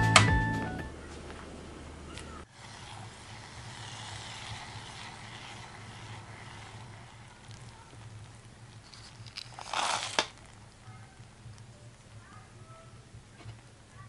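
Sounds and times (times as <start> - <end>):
almonds poured into saucepan: 2.5 - 10.6.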